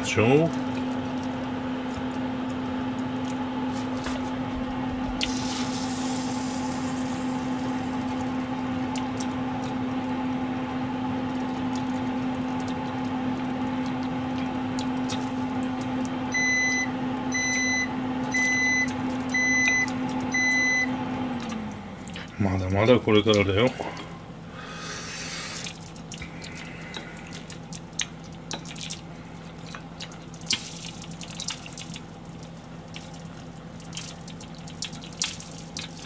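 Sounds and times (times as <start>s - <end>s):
electrical hum: 0.0s - 36.0s
appliance beeping: 16.2s - 22.0s.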